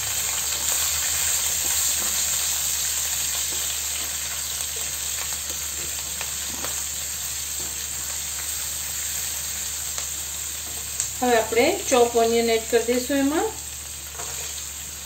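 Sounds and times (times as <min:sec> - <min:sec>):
hot oil sizzling in a pan: 0:00.0 - 0:15.0
spatula scraping a pan: 0:14.1 - 0:14.6.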